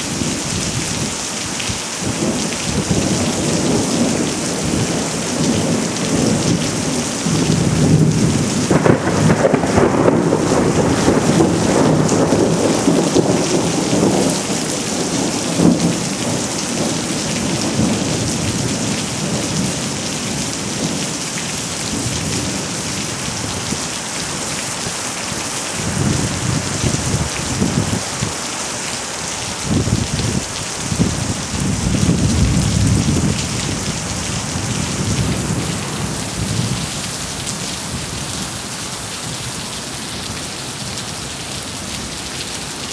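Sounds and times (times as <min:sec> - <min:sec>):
heavy rain pouring: 0:00.0 - 0:42.9
thunder rumbling: 0:02.0 - 0:21.2, 0:25.8 - 0:28.4, 0:29.4 - 0:39.4.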